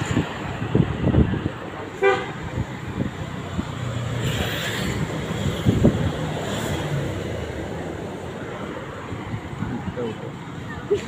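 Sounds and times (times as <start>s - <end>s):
traffic and engine noise: 0.0s - 11.0s
vehicle horn toot: 2.0s - 2.4s.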